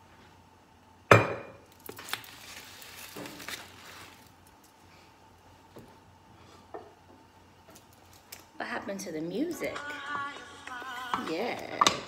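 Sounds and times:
rustling: 1.8 - 4.8.

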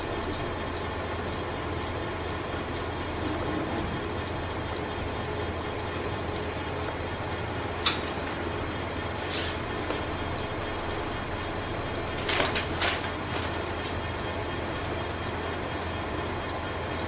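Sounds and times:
testing machine hum: 0.0 - 17.0
sharp click: 7.8 - 8.4.

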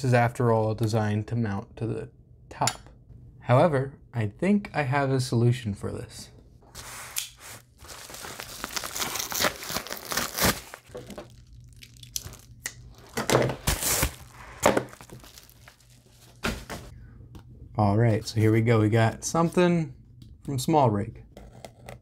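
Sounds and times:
paper crinkling and ripping: 6.8 - 16.9.

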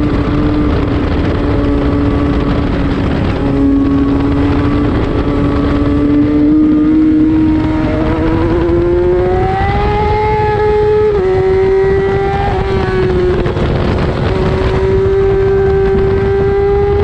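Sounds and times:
motorcycle engine at high revs: 0.0 - 17.0
wind rush: 0.0 - 17.0.

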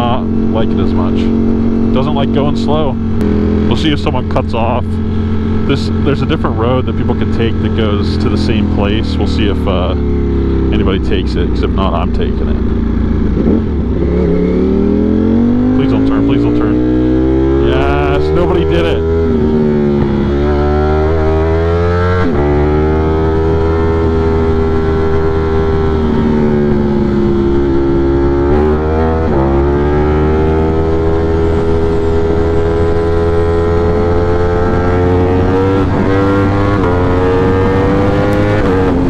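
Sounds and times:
motorcycle engine running: 0.0 - 39.0.

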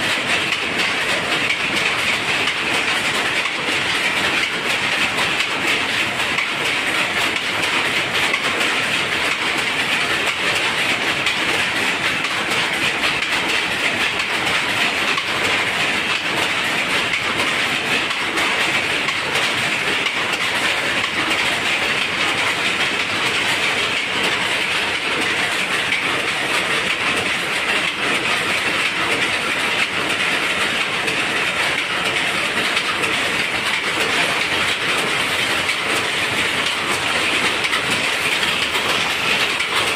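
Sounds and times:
power looms clattering: 0.0 - 39.9.

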